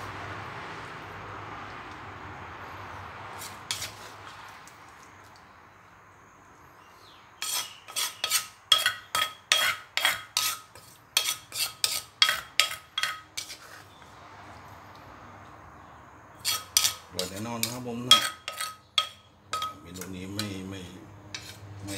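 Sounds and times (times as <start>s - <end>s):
spoon knocking against clay mortar: 16.8s - 20.6s.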